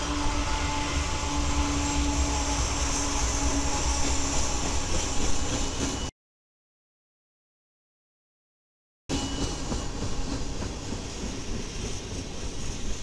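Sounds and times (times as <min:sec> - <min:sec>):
locomotive engines droning: 0:00.0 - 0:06.1.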